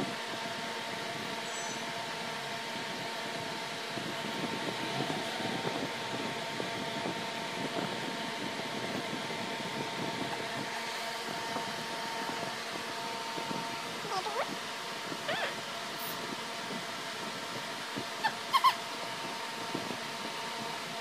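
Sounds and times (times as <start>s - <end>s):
mechanical hum and hiss: 0.0s - 21.0s.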